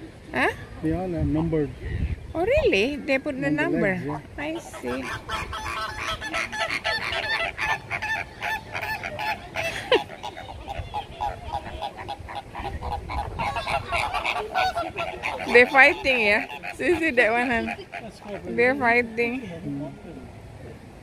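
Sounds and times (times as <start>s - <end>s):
flamingos honking: 3.9s - 20.0s.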